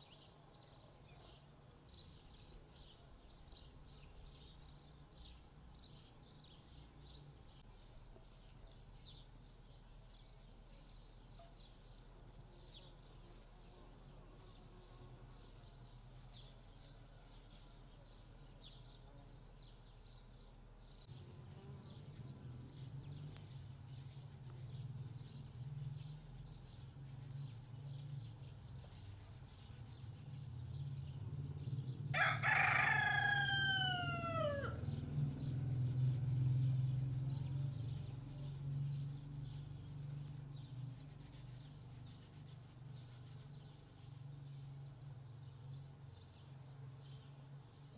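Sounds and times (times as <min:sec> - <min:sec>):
faint small-bird chirps: 0:00.0 - 0:31.2
rooster crowing: 0:32.1 - 0:34.8.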